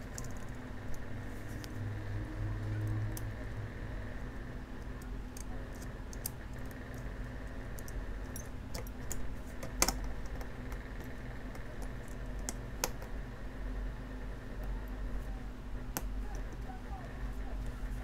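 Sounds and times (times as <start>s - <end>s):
steady low hum: 0.0s - 18.0s
metal tweezers clicking and tapping: 7.8s - 13.1s.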